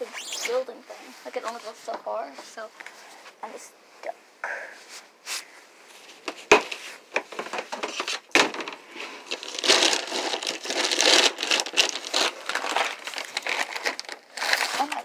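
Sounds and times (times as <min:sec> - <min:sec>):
crackling: 0:00.0 - 0:01.8, 0:06.1 - 0:15.0
rustling and crinkling: 0:00.1 - 0:03.6, 0:04.8 - 0:15.0.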